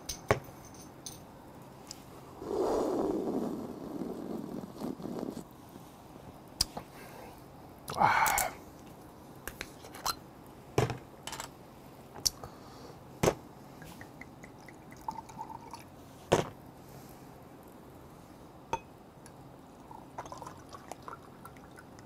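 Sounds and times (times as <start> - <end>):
liquid pouring into glass: 14.0 - 15.9, 19.8 - 22.0.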